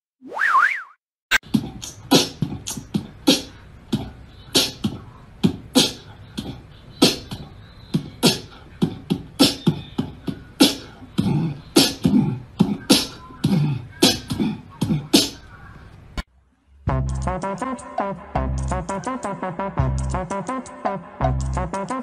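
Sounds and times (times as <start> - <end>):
percussive beatbox hits: 1.3 - 15.4.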